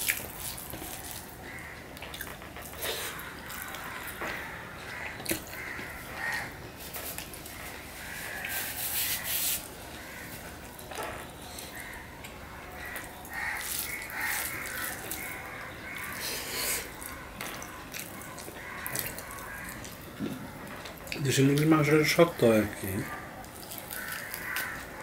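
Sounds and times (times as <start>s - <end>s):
wet chewing and lip-smacking: 0.0s - 8.7s, 11.5s - 21.2s, 23.4s - 25.0s.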